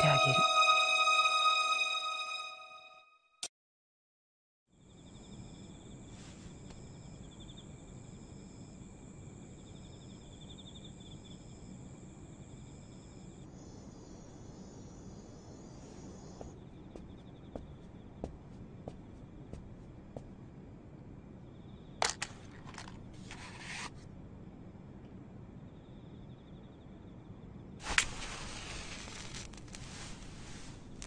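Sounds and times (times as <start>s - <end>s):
crickets chirring: 4.8s - 23.2s, 24.5s - 31.0s.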